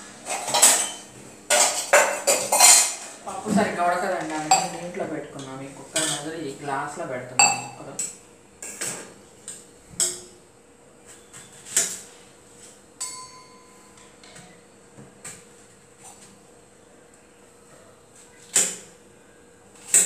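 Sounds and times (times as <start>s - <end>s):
metal kitchen utensils clinking: 0.2s - 6.4s, 7.4s - 9.0s, 13.0s - 13.7s
metallic ring: 7.4s - 7.8s, 13.0s - 14.0s.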